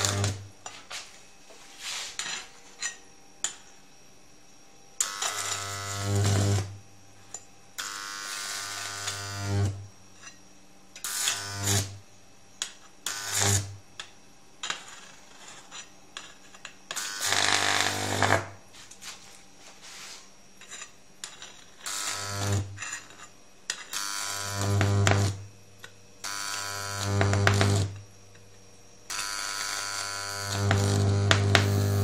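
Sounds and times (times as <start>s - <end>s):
electric arcing crackle: 0.0s - 0.5s, 5.0s - 6.8s, 7.8s - 9.8s, 11.1s - 12.0s, 13.1s - 13.8s, 17.0s - 18.6s, 21.8s - 22.8s, 23.9s - 25.4s, 26.2s - 28.0s, 29.1s - 32.0s
transformer buzzing with mains hum: 0.0s - 32.0s.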